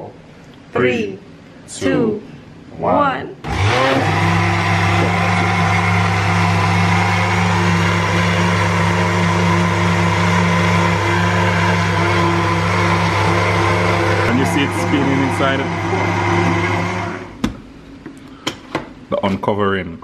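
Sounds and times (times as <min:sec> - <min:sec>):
blender motor humming: 0:03.4 - 0:17.4.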